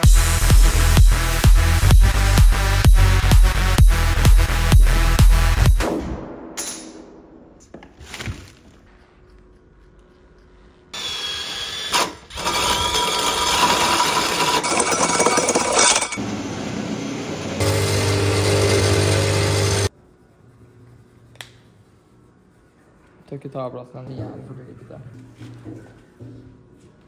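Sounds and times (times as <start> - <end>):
drill with hole saw cutting wood: 11.0 - 16.2, 17.6 - 19.9.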